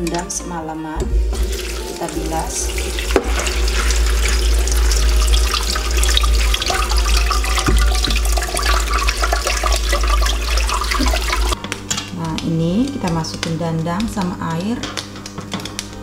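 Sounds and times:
water pouring through colander: 1.3 - 11.6.

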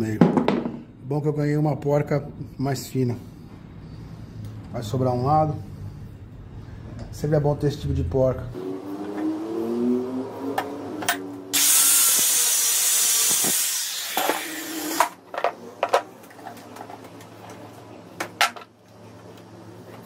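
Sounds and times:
hot metal hissing in water: 11.6 - 14.8.

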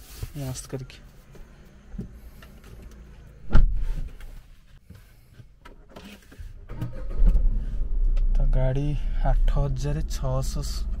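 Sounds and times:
car rumble: 0.4 - 11.0
heavy thump in car: 3.4 - 4.1.

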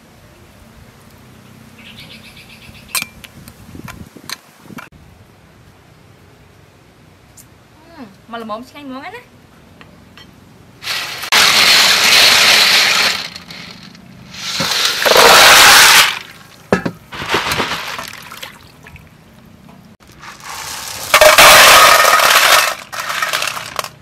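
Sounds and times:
shells clattering in basin: 10.8 - 18.5, 20.0 - 24.0
water splashing: 14.4 - 21.9.

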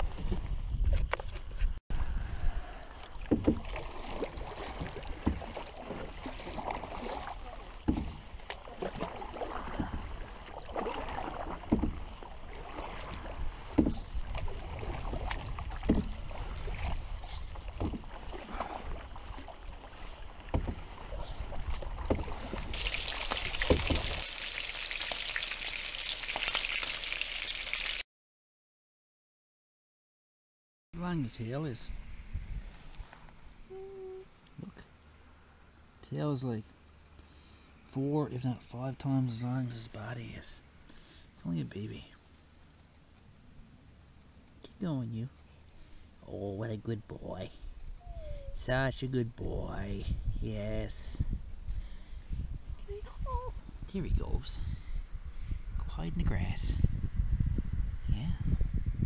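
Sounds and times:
paddle splashing and knocking: 0.0 - 1.7, 2.4 - 26.8
fish sizzling in hot oil: 22.8 - 28.0.

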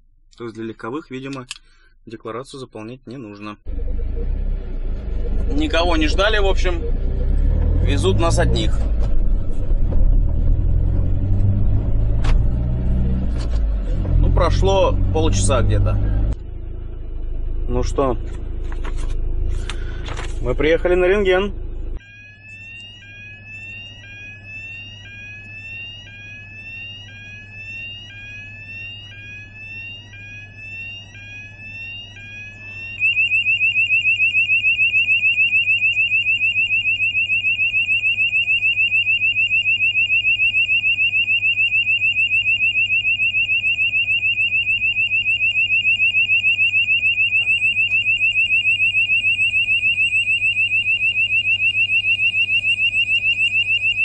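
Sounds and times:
repeating rising alarm tone: 3.6 - 16.4, 20.6 - 54.0
fast-pulsing alarm tone: 3.7 - 13.2, 20.7 - 54.0.

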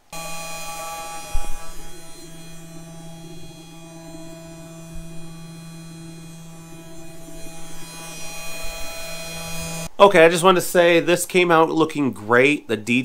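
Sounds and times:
router spindle motor humming: 0.0 - 10.0.

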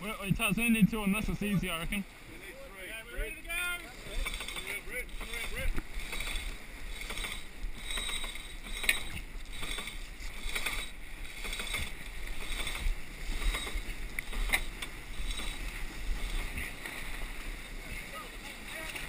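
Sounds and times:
water rushing past a hull: 0.0 - 19.0
wind: 0.0 - 19.0
rustles: 3.8 - 19.0.

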